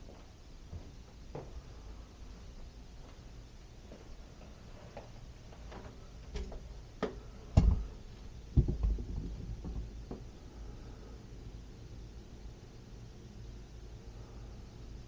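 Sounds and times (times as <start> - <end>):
door knocking and thumping open: 7.6 - 7.9, 8.5 - 10.2.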